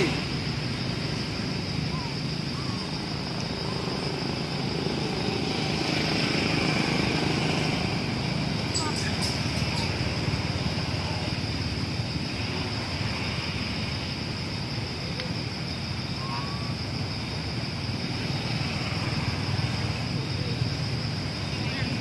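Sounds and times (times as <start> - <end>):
steady high-pitched drone: 8.6 - 11.5
faint chirp: 8.7 - 10.3, 16.0 - 16.8, 21.4 - 22.0.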